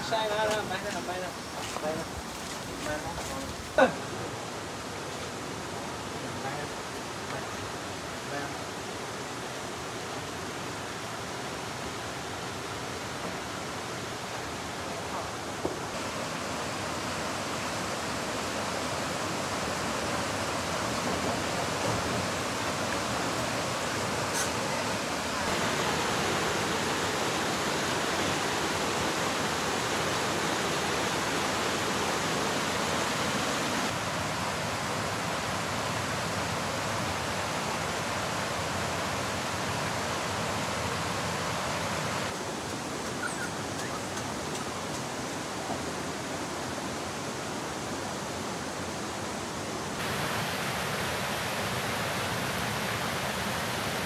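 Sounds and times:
stream flowing over boulders: 0.0 - 54.0.

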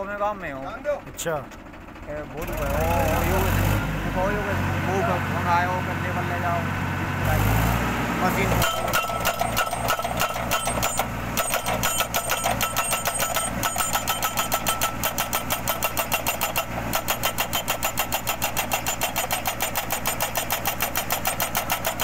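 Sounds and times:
tractor engine running: 0.0 - 22.0
hydraulic hammer pounding metal post: 8.5 - 22.0.

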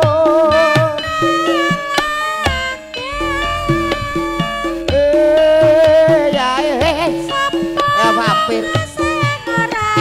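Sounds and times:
wavering melody with bending pitch: 3.1 - 7.7
drum strokes: 3.1 - 7.8.

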